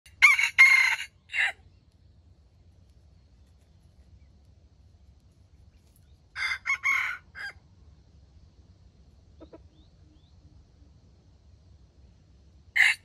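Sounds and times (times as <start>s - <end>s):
rooster crowing: 0.1s - 1.6s, 6.3s - 7.6s, 12.8s - 13.0s
faint chicken cluck: 0.1s - 11.8s, 12.7s - 13.0s.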